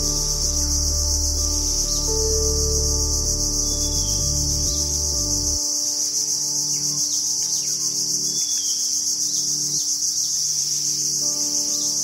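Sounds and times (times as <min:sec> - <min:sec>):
low hum: 0:00.0 - 0:05.7
high-pitched insect chorus: 0:00.0 - 0:12.0.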